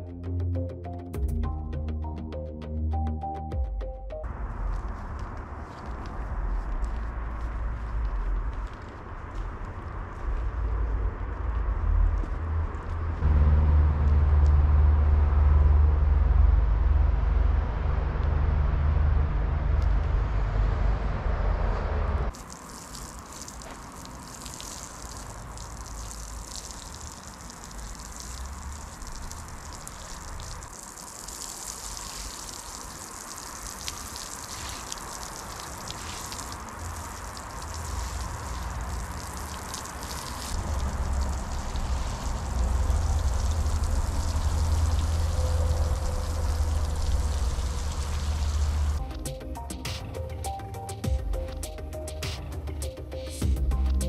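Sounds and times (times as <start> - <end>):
low rumble: 4.3 - 22.3, 40.6 - 49.3
water pattering on sand: 4.5 - 13.3, 22.3 - 49.0
hose spray hissing: 22.3 - 49.0.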